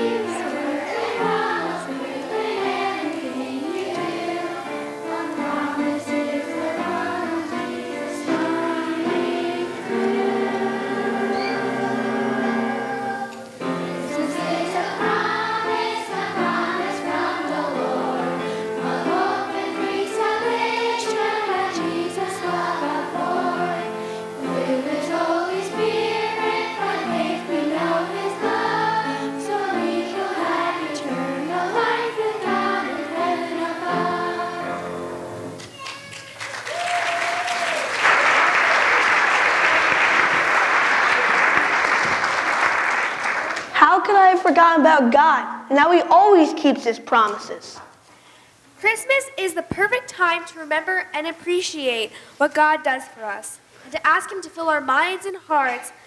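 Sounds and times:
children's choir singing: 0:00.0 - 0:35.6
audience applause: 0:35.7 - 0:43.8.

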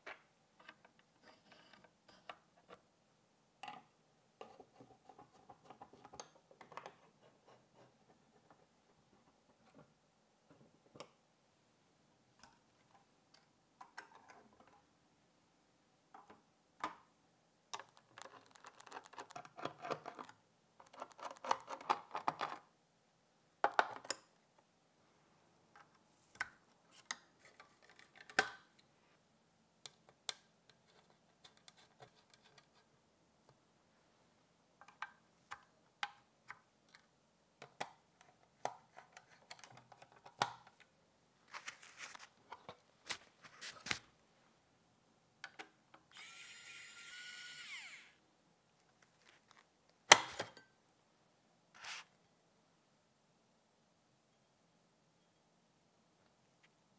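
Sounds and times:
small clicks taps and scrapes: 0:03.6 - 0:09.9, 0:12.4 - 0:14.9, 0:17.7 - 0:22.6, 0:25.7 - 0:28.9, 0:29.8 - 0:33.6, 0:34.8 - 0:40.9
scraping and rustling: 0:41.5 - 0:44.1.

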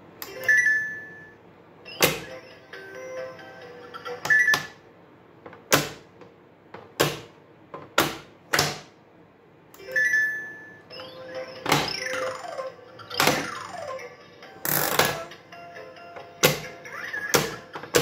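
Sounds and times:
tinkly toy tones: 0:00.3 - 0:04.6, 0:09.8 - 0:14.5.

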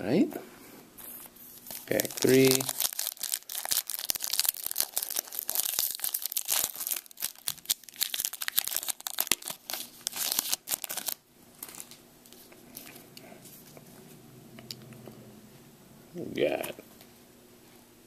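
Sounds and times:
foil wrapper crinkling and tearing: 0:01.6 - 0:12.0.

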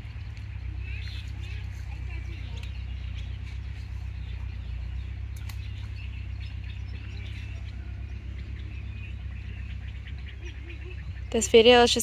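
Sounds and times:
birds chirping: 0:00.0 - 0:12.0
steady low hum: 0:00.0 - 0:12.0.

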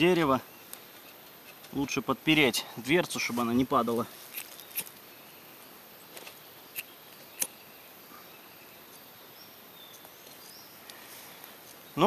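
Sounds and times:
outdoor background hiss: 0:00.0 - 0:12.0
small sharp clicks: 0:06.2 - 0:07.6.

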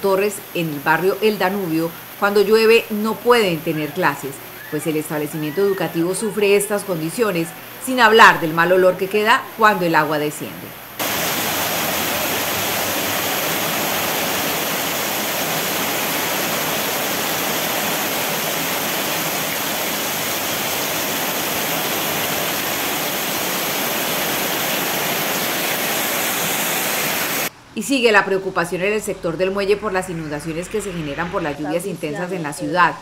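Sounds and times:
torrential rain pouring: 0:00.0 - 0:08.8, 0:10.8 - 0:27.5.

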